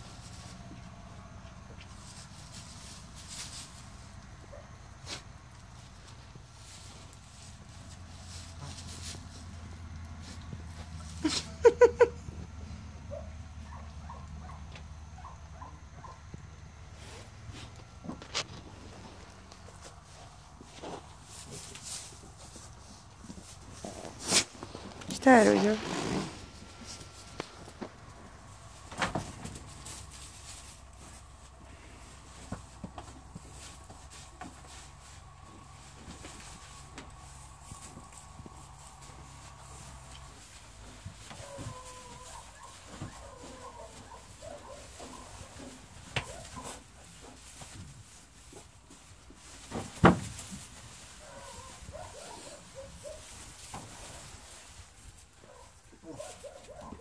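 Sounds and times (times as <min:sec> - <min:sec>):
faint animal calls: 0:41.2 - 0:46.8.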